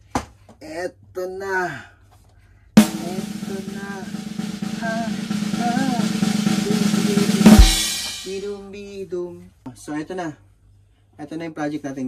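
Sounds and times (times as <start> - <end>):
drum roll with music: 2.8 - 8.6.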